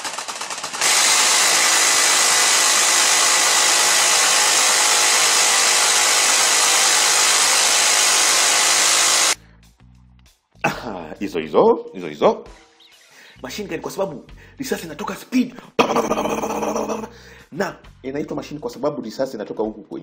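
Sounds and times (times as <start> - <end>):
minigun firing continuous burst: 0.0 - 9.4.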